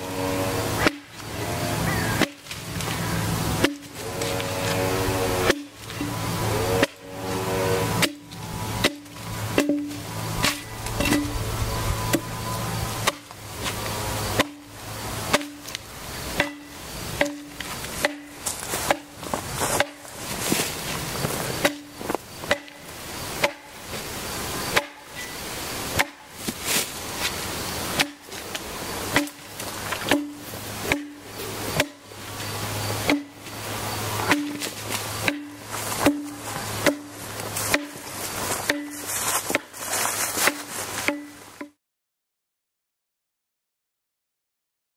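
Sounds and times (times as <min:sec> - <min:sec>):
axe chopping wood: 0:00.8 - 0:01.3, 0:02.2 - 0:03.0, 0:03.6 - 0:03.9, 0:05.4 - 0:06.1, 0:08.0 - 0:11.4, 0:13.0 - 0:14.6, 0:15.3 - 0:20.7, 0:21.6 - 0:22.8, 0:23.4 - 0:23.7, 0:24.7 - 0:25.0, 0:26.0 - 0:26.8, 0:27.9 - 0:31.2, 0:31.8 - 0:32.0, 0:33.0 - 0:33.4, 0:34.2 - 0:39.8, 0:40.4 - 0:41.8.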